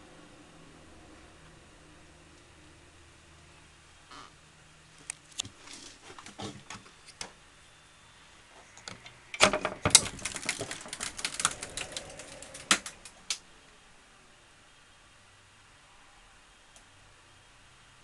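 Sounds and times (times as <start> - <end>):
clicking and rattling: 9.0 - 13.4.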